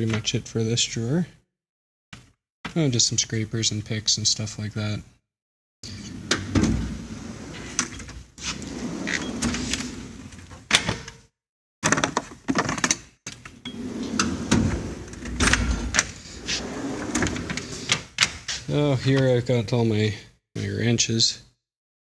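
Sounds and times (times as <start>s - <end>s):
tool box drawers sliding: 5.9s - 10.7s, 13.7s - 18.1s.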